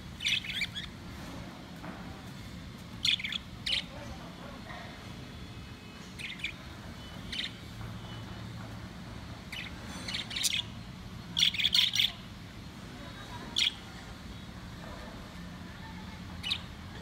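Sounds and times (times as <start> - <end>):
budgerigars chirping: 0.2 - 1.0, 3.0 - 4.0, 6.0 - 8.3, 9.4 - 12.2, 16.4 - 16.7.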